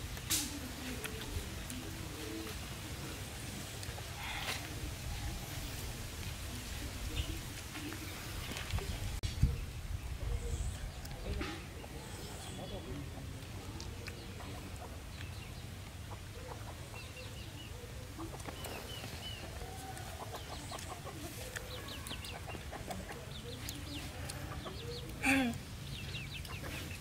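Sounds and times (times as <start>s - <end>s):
chickens clucking: 0.0s - 9.6s, 10.2s - 27.0s
small birds chirping: 0.0s - 27.0s.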